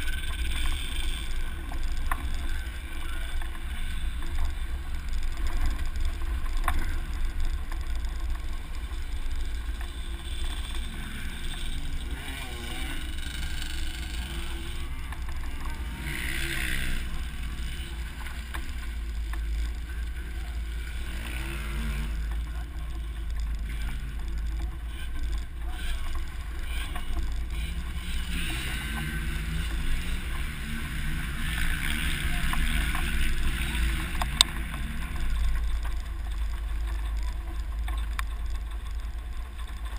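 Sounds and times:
vehicle engine revving: 0.0s - 39.9s.

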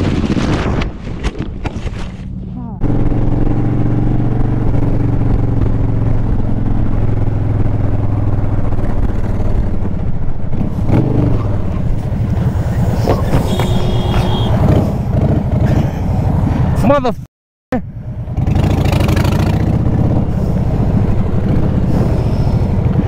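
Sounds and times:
motorcycle engine running: 13.0s - 15.7s, 17.8s - 23.0s
wind noise on microphone: 19.7s - 23.0s.

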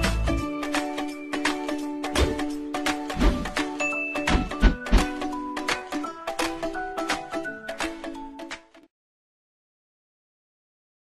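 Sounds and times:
background music with percussion beat: 0.0s - 8.2s.

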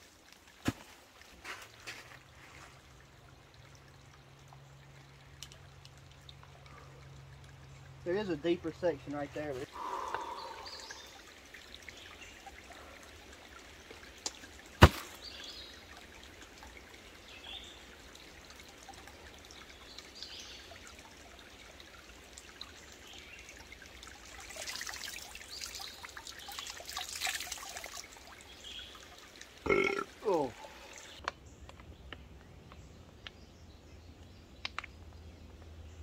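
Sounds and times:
stream trickling: 0.0s - 31.6s.

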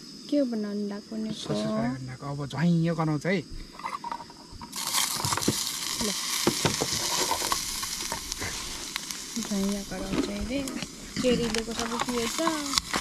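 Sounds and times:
sausages sizzling in a pan: 1.6s - 13.0s.

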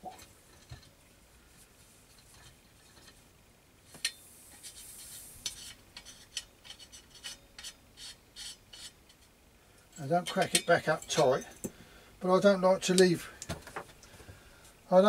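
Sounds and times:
light metallic clicks and rubbing: 8.4s - 11.8s.

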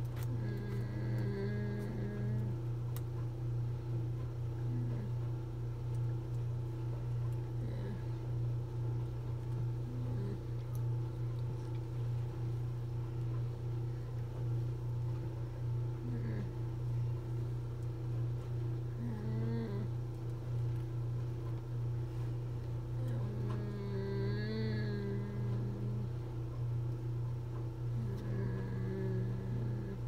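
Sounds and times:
low machine hum: 0.0s - 30.0s.

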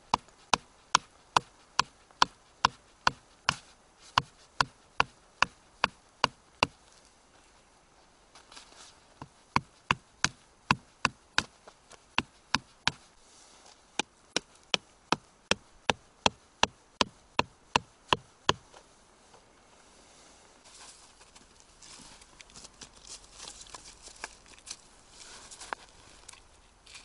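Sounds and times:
faint rustling: 6.8s - 9.8s, 11.5s - 14.7s, 18.6s - 27.0s.

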